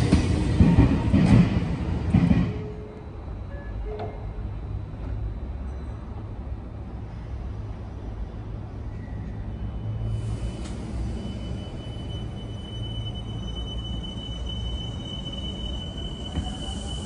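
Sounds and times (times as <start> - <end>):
electric train low rumble: 0.0 - 17.0
train hiss: 9.9 - 12.9, 13.8 - 17.0.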